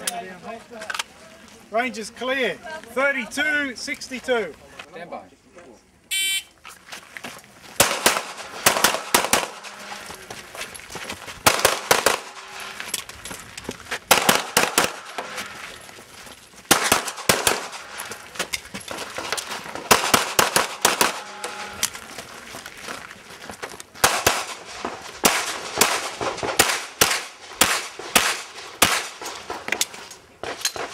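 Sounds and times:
pistol shots: 7.8s - 9.9s, 11.4s - 12.8s, 14.1s - 15.5s, 16.7s - 18.2s, 18.9s - 21.9s, 24.0s - 30.9s.

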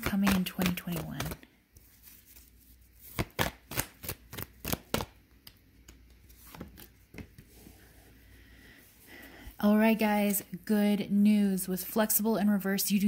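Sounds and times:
cards being shuffled: 0.0s - 7.6s.

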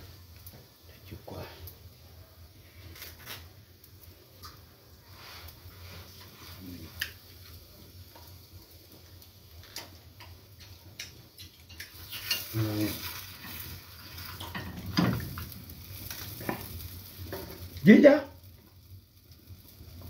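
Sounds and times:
flatbread sizzling on a pan: 0.0s - 20.0s.

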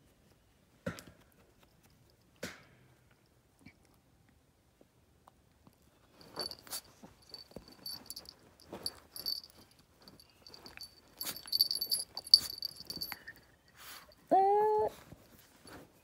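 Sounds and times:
fur rustling on fabric: 6.2s - 14.0s
collar bell and tag jingling: 6.2s - 14.4s.

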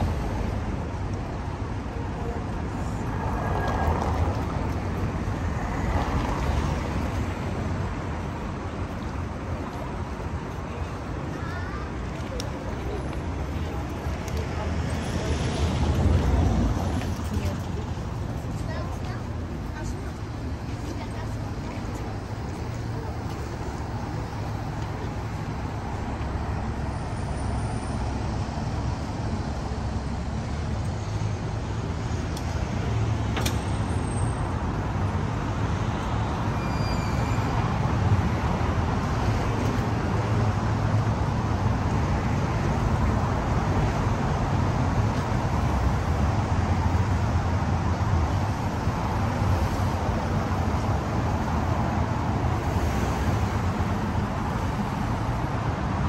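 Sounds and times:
city street traffic: 0.0s - 56.0s.

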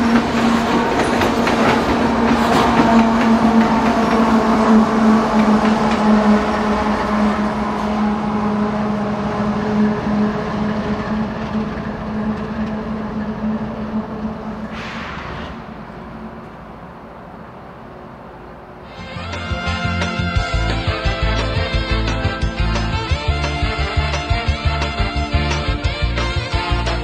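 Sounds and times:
train wheels clacking over rail joints: 0.0s - 8.6s, 9.8s - 16.6s
diesel locomotive engine drone: 0.0s - 27.0s.

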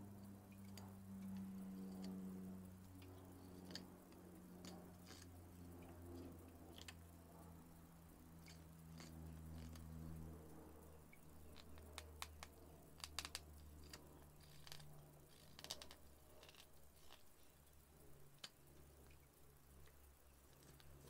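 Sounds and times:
low steady hum: 0.0s - 21.0s
knife carving wood: 3.6s - 3.8s, 4.6s - 5.3s, 8.4s - 9.8s, 11.5s - 17.2s.

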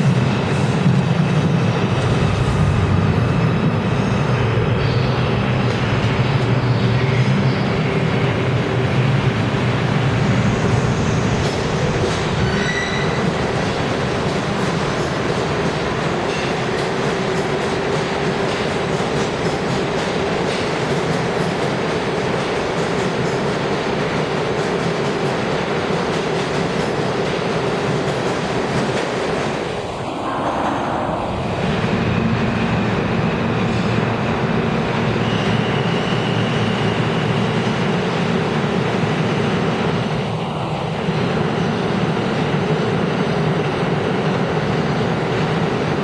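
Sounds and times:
subway train wheels rumbling on rail: 0.0s - 46.0s
wheel squeal: 12.3s - 13.4s, 35.1s - 37.2s.

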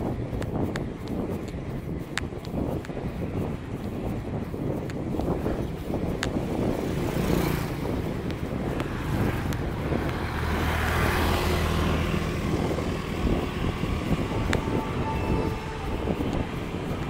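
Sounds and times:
tyre rumble on asphalt: 0.0s - 17.0s
wind rushing over microphone: 0.0s - 17.0s
passing vehicle engine: 6.4s - 17.0s.

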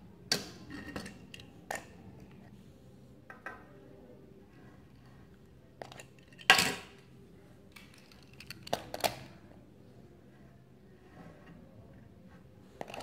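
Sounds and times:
toy cars clicking and clinking: 7.7s - 9.4s.

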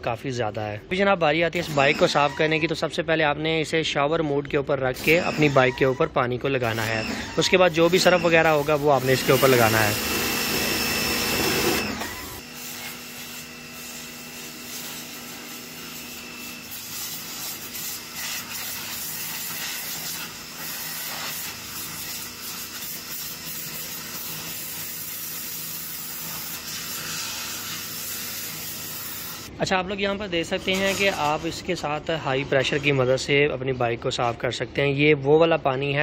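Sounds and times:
pressure washer jet hissing: 5.0s - 5.8s, 6.6s - 29.6s, 30.5s - 31.8s.

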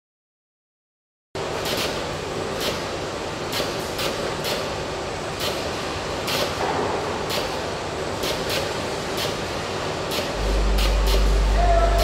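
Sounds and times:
machinery hum: 1.4s - 12.0s.

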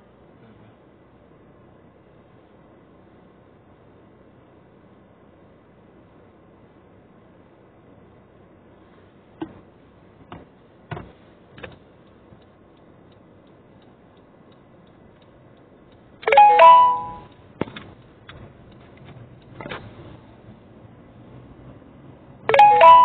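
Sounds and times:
loud two-note chime: 16.3s - 17.3s, 22.5s - 23.0s.

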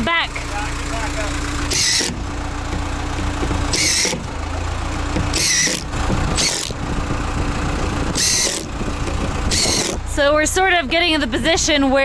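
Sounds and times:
forklift engine idling: 0.0s - 12.0s
impact driver hammering: 1.7s - 10.1s.

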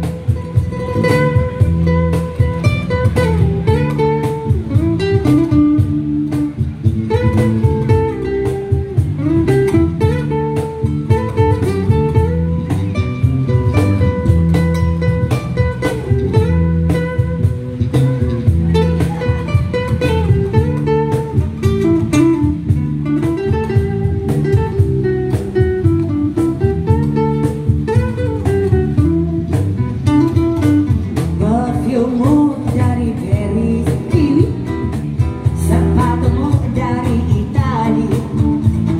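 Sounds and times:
acoustic guitar melody: 0.0s - 38.9s
steady bass line: 0.0s - 38.9s
person singing: 31.4s - 34.7s, 35.6s - 38.8s.

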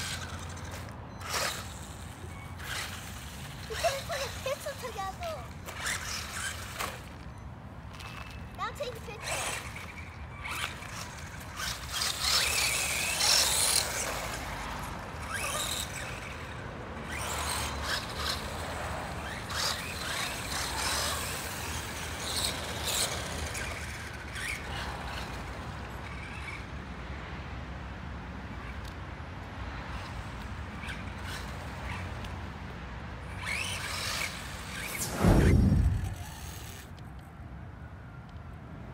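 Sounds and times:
tyres hissing on asphalt: 3.0s - 5.5s.

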